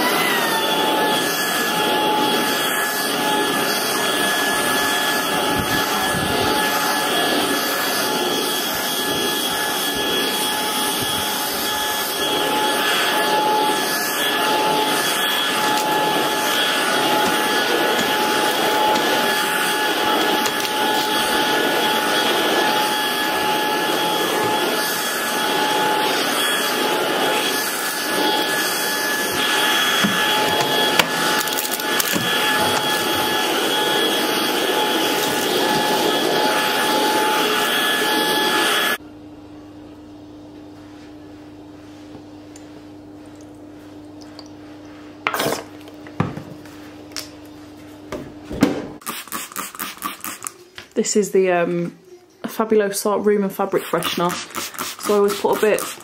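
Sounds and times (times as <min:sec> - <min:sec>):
vacuum cleaner motor whine: 0:00.0 - 0:48.8, 0:52.5 - 0:56.0
brush head on rug and floor: 0:11.4 - 0:38.3, 0:49.0 - 0:51.1, 0:53.5 - 0:56.0.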